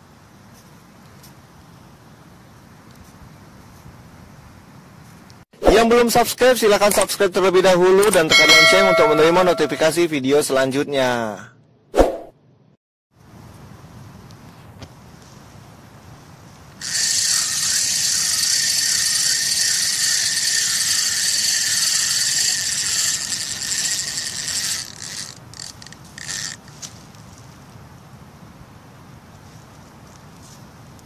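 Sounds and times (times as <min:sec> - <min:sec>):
fishing reel drag screeching: 0:16.8 - 0:26.8.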